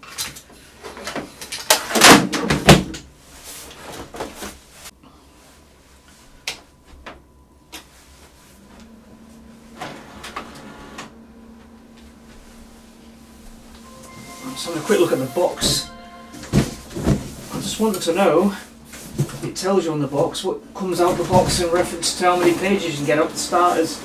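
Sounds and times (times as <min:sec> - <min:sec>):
printer motor hum: 0:08.8 - 0:13.8.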